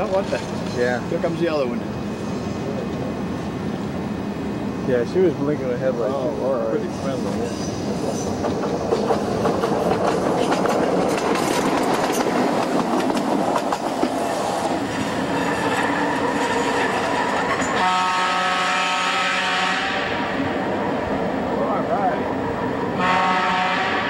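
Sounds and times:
train wheels rattling over rails: 0:00.0 - 0:04.6, 0:05.4 - 0:24.0
train horn: 0:17.7 - 0:20.4, 0:23.0 - 0:24.0.

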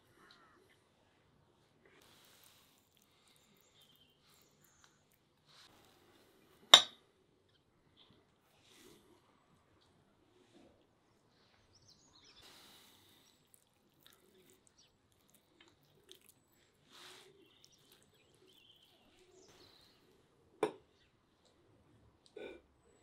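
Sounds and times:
meat pulled apart and chewed: 0:13.1 - 0:16.6.

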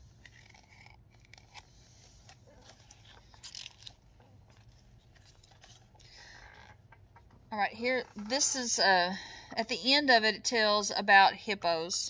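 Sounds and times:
book pages rustling: 0:00.0 - 0:07.3
low room hum: 0:00.0 - 0:12.0.

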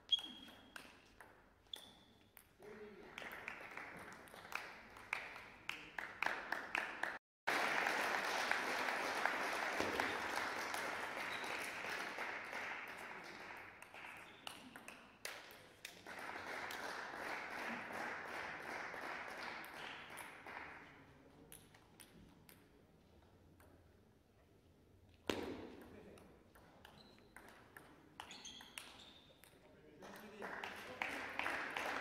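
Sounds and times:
applause: 0:02.6 - 0:21.1, 0:30.0 - 0:32.0.

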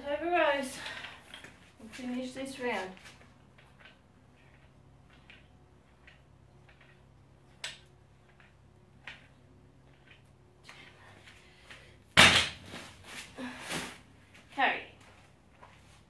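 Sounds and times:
dumbbells clicking: 0:03.5 - 0:10.9.

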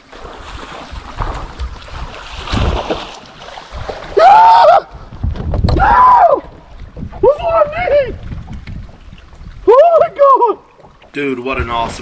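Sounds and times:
water around boat: 0:00.0 - 0:12.0
wind noise on microphone: 0:03.6 - 0:12.0
man yelling with excitement: 0:07.2 - 0:08.2, 0:09.7 - 0:10.6.

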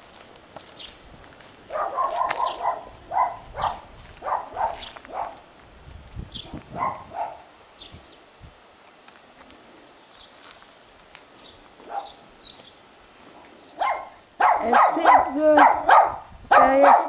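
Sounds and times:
dog barking: 0:01.7 - 0:05.4, 0:06.8 - 0:07.5, 0:11.8 - 0:12.2, 0:13.8 - 0:17.0.

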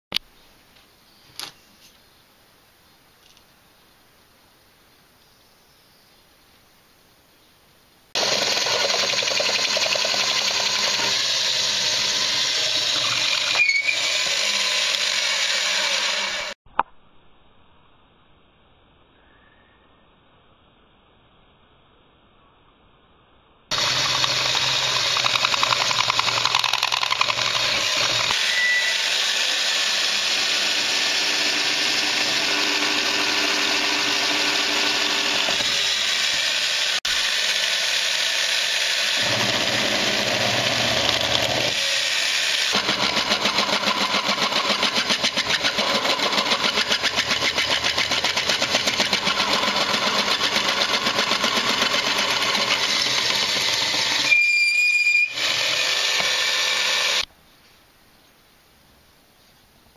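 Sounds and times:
drill press drilling metal: 0:08.2 - 0:16.6, 0:23.7 - 0:57.2.

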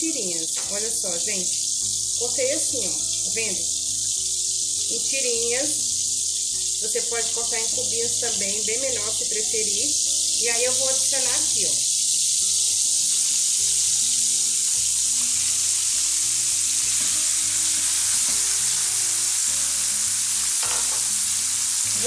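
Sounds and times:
meat sizzling in a frying pan: 0:00.0 - 0:22.0
spatula pushing meat in pan: 0:12.4 - 0:22.0.

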